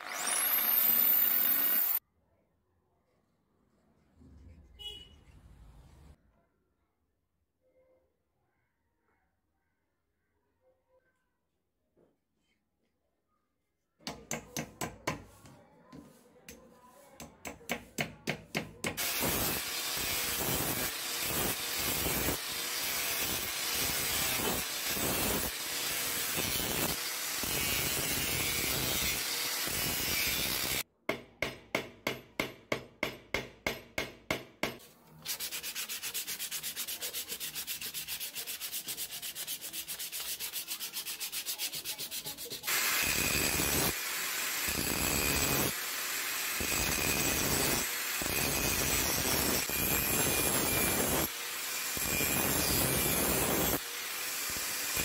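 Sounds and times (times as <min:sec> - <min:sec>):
sanding wooden handle: 0:35.2 - 0:42.7.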